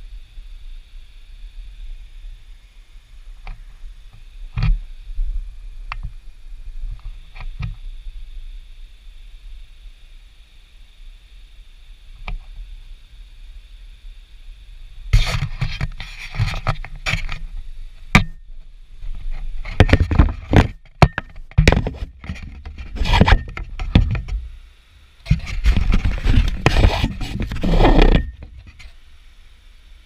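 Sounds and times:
camera scraping on wood: 15.2 - 17.5, 19.2 - 24.4, 25.3 - 29.0.

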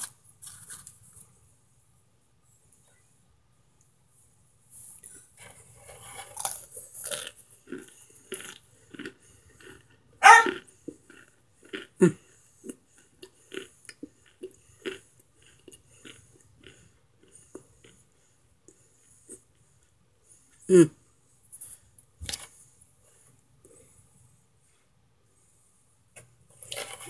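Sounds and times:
starch chunks crunching: 0.0 - 1.0, 5.4 - 18.0.

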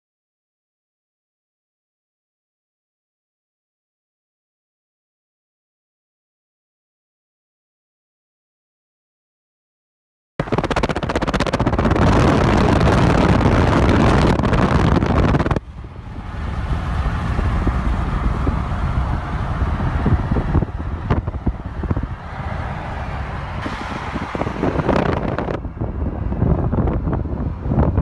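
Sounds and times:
road and tyre rumble: 10.4 - 28.0
wind rushing over microphone: 10.4 - 28.0.

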